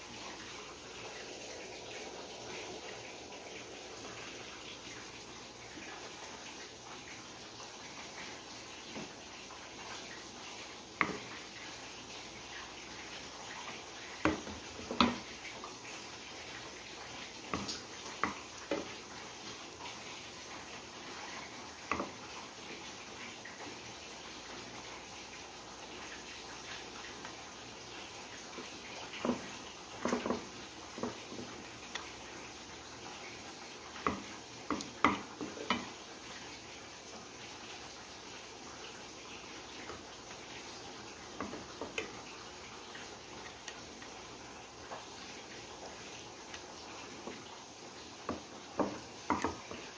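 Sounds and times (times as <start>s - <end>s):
faint steady hiss: 0.0s - 49.9s
spoon knocking on cookware: 34.0s - 35.9s.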